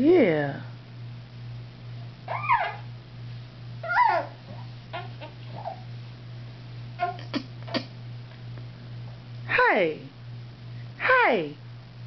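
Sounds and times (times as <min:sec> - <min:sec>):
steady low hum: 0:00.0 - 0:12.0
baby babbling: 0:03.8 - 0:05.9, 0:07.0 - 0:07.9.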